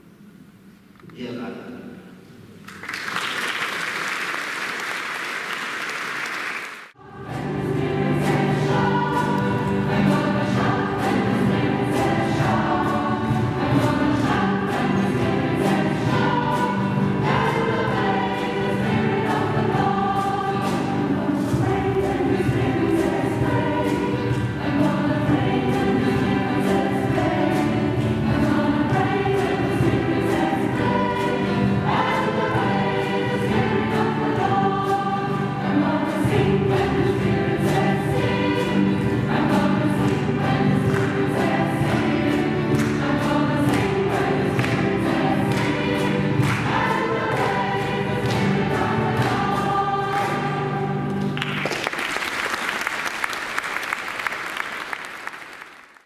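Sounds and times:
audience applauding: 2.6 - 7.0, 51.1 - 56.0
choir singing with steady beat: 6.7 - 51.4.

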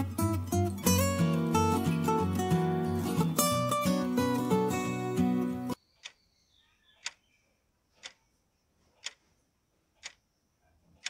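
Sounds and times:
guitar music: 0.0 - 5.8
clock ticking: 6.0 - 6.2, 7.0 - 7.2, 8.0 - 8.3, 9.0 - 9.3, 10.0 - 10.2.

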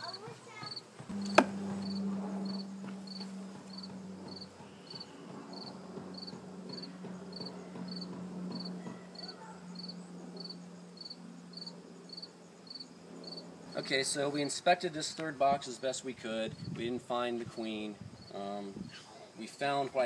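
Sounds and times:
cricket chirping: 0.0 - 14.1
bees humming: 0.0 - 14.5.

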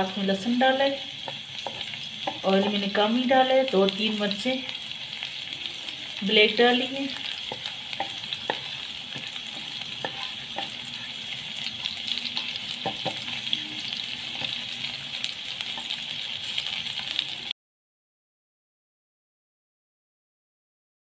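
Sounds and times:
garlic and spices sizzling in oil: 0.0 - 17.5
wooden spatula scraping a pan: 7.0 - 14.6.

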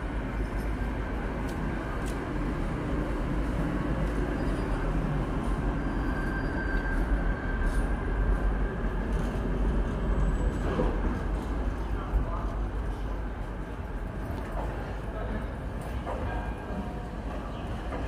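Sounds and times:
tram wheels rumbling: 0.0 - 18.0
faint high wheel squeal: 4.2 - 8.0.

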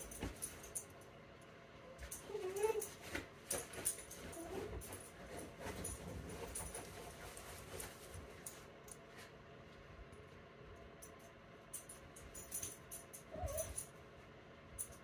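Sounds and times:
small dog whining: 2.0 - 3.0, 4.3 - 4.8, 13.2 - 13.9
scratching and rustling of fabric: 2.0 - 9.4.

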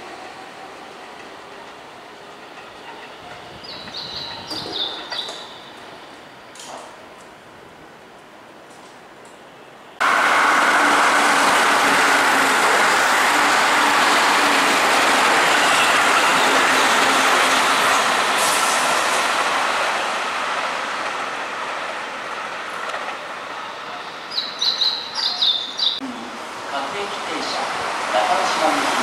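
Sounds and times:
train wheels on rails: 0.0 - 7.4, 10.0 - 25.8
birds chirping: 2.8 - 6.2, 23.6 - 26.0.

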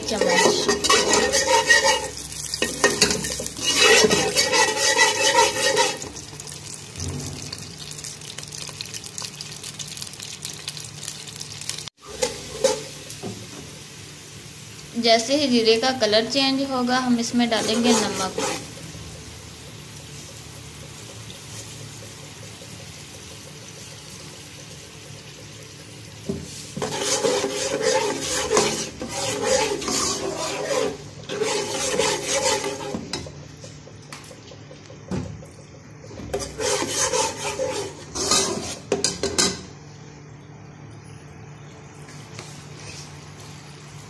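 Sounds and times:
spatula scraping a pan: 0.0 - 6.2, 12.0 - 13.0, 17.2 - 18.8, 26.5 - 33.3, 36.2 - 39.5
seeds sizzling in hot oil: 0.0 - 33.3, 36.3 - 40.0.

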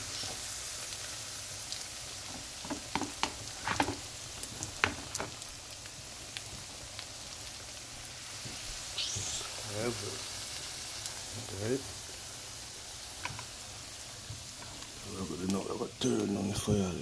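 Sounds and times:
oil popping and crackling: 0.0 - 16.6
oil sizzling in frying pan: 0.0 - 17.0.

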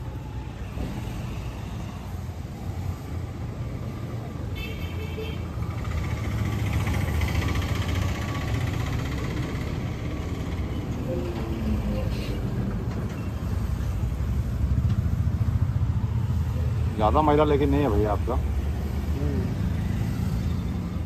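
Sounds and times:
vehicle engine rumbling: 5.4 - 21.0.

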